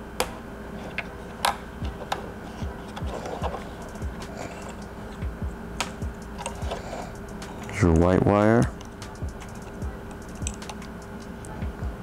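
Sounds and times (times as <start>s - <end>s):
wire connectors clicking: 2.9s - 11.6s.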